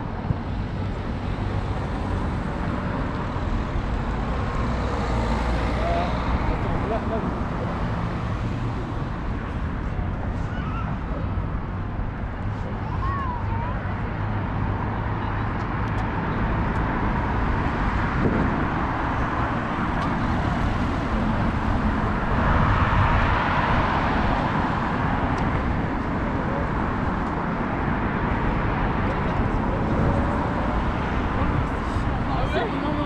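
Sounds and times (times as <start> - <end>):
cars going by: 0.0 - 33.0
vehicle passing loudly: 1.4 - 9.8.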